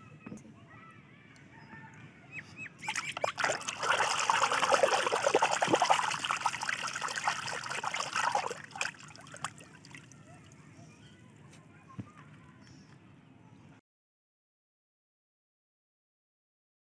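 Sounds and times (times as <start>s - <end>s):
water drips and plops: 2.8s - 10.2s
water splashing in a tub: 2.8s - 10.2s.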